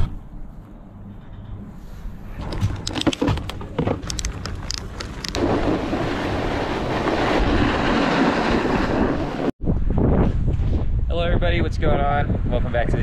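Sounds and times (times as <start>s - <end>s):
ratchet strap clicking: 2.6s - 5.4s
wind on microphone: 4.1s - 13.0s
snowboard sliding over snow: 5.4s - 9.5s.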